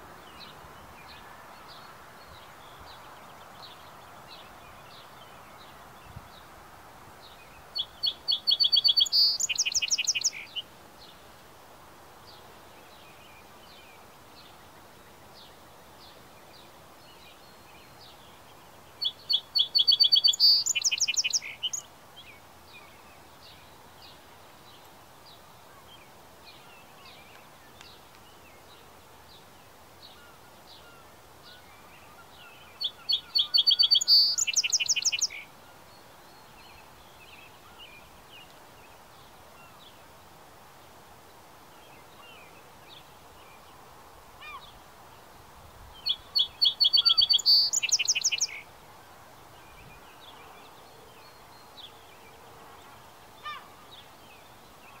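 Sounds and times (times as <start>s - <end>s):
songbird singing: 0.0s - 55.0s
faint bird chirps: 7.4s - 10.7s, 16.4s - 23.8s, 29.6s - 40.0s, 46.0s - 48.7s.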